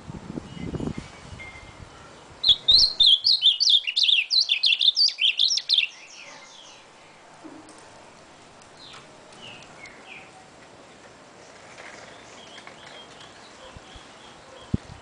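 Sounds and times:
bird singing warbling phrase: 2.4s - 6.9s.

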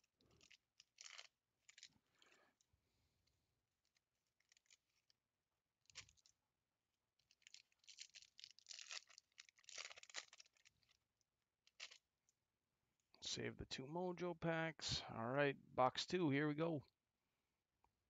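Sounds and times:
foil wrapper crinkling and tearing: 0.0s - 2.0s, 3.9s - 5.2s, 5.8s - 6.3s, 7.2s - 11.0s, 11.6s - 12.1s.

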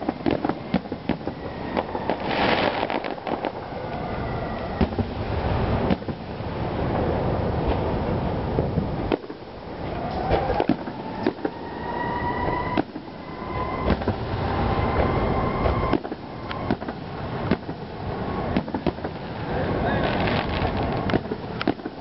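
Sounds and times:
fireworks bangs and cracks: 0.0s - 22.0s
rolling rumble of booms: 0.0s - 22.0s
high whistling tone: 1.2s - 4.9s, 9.8s - 16.8s.

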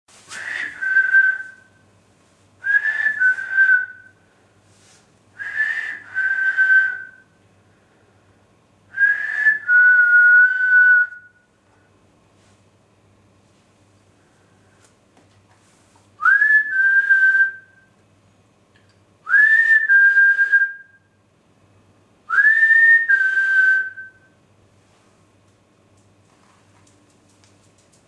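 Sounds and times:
person whistling for a dog: 0.3s - 1.8s, 2.6s - 4.2s, 5.4s - 7.3s, 9.0s - 11.4s, 16.2s - 17.9s, 19.3s - 21.1s, 22.3s - 24.4s.

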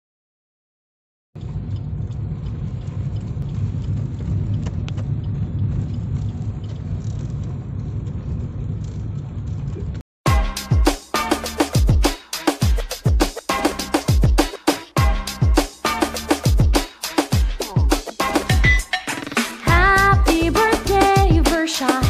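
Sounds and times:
faint clicks: 1.4s - 9.9s
car driving road and engine rumble: 1.4s - 10.0s.

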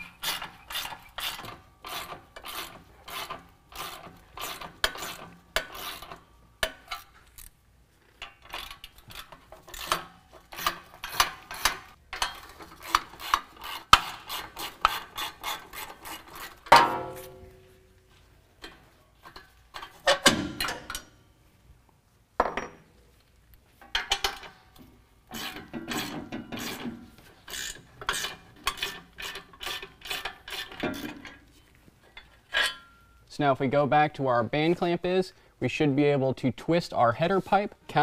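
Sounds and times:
ratchet rasp: 0.0s - 7.1s, 8.4s - 11.9s, 12.6s - 16.7s, 25.3s - 31.2s.

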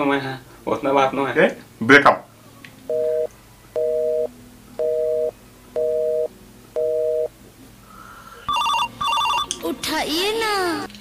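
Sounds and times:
telephone busy tone: 2.9s - 7.3s, 8.5s - 9.5s.

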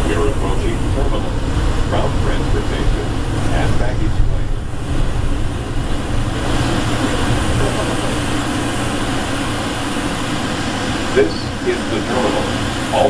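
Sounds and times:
train rumbling through tunnel: 0.0s - 13.0s.

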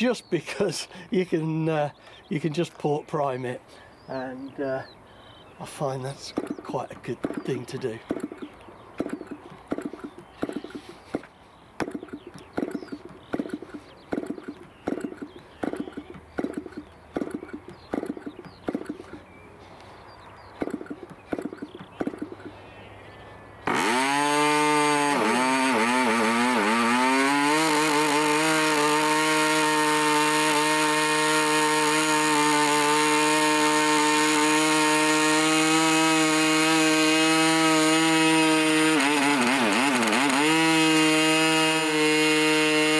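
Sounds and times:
model engine running high-pitched: 23.7s - 42.9s.

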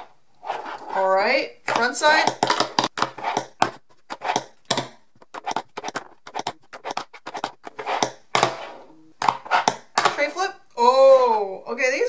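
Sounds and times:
fingerboard wheels rolling: 2.3s - 10.2s.

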